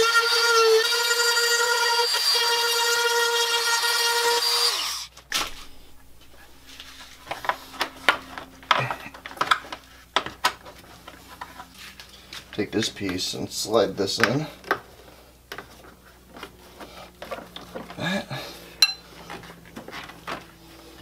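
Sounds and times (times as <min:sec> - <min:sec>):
rotary tool whining: 0:00.0 - 0:12.6.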